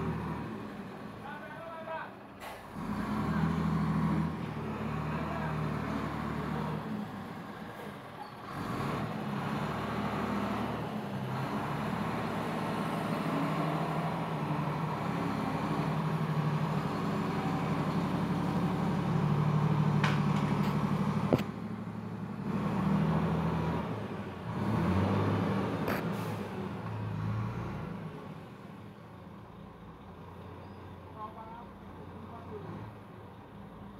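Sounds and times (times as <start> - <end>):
truck engine revving: 0.0 - 1.2, 2.6 - 7.8, 8.4 - 28.8.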